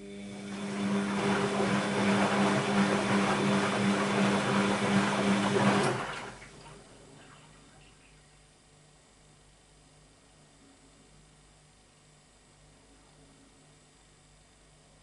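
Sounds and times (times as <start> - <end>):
washing machine motor humming: 0.0 - 8.3
water and laundry sloshing: 0.4 - 8.1.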